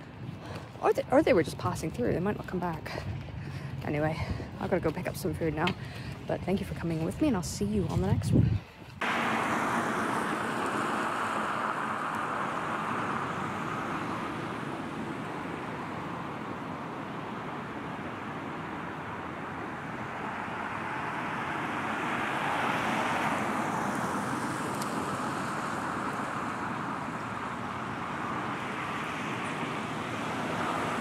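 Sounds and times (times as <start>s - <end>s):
road traffic noise: 0.0s - 31.0s
vehicle passing: 9.0s - 31.0s.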